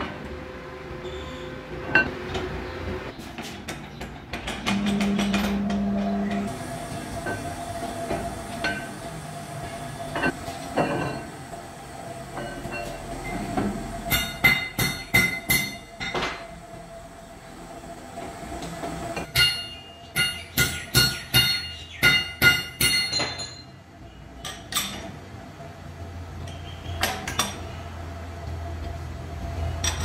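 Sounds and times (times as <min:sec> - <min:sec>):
steel bar striking metal: 0:19.3 - 0:23.6.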